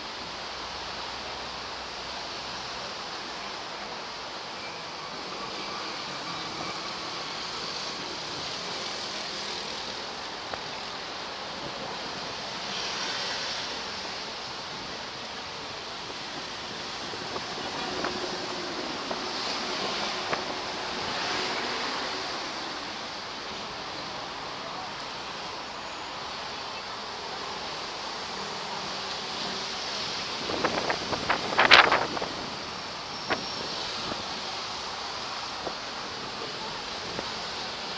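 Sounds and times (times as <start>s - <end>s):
street traffic noise: 0.0s - 37.9s
vehicles passing: 5.4s - 37.9s.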